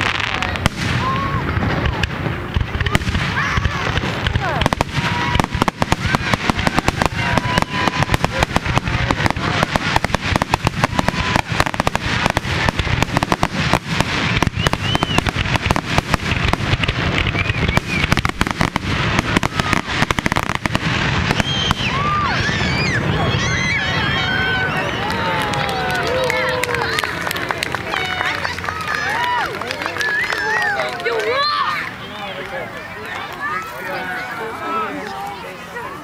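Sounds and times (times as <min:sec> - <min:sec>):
fireworks bursting and crackling: 0:00.0 - 0:36.0.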